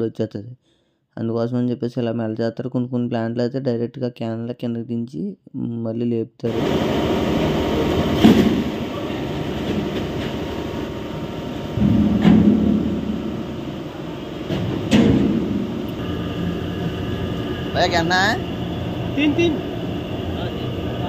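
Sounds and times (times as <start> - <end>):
machinery humming: 6.5 - 21.0
heavy knocks: 11.7 - 16.0.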